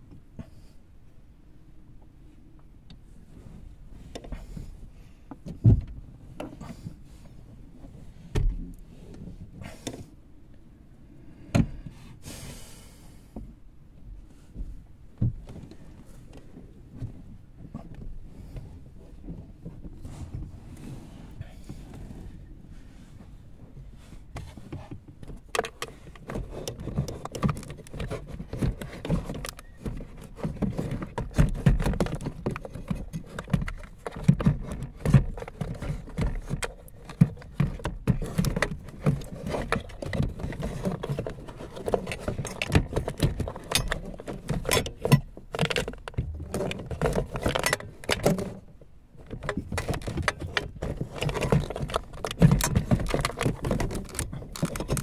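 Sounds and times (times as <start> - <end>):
plastic clicks and rattling: 25.2 - 48.6, 49.2 - 55.0.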